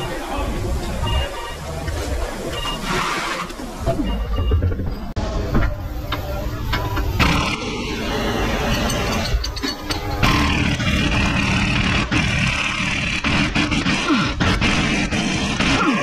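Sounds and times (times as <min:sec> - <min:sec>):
impact wrench hammering: 0:08.7 - 0:16.0.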